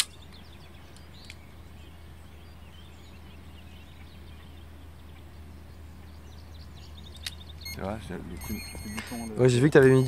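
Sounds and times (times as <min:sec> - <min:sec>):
birds chirping: 0:00.0 - 0:10.0
steady low hum: 0:06.9 - 0:10.0.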